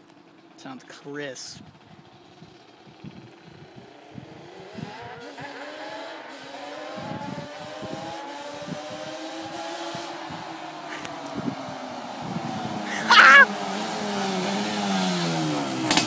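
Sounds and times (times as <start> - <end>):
two-stroke engine revving: 2.3 - 10.1, 12.6 - 16.0.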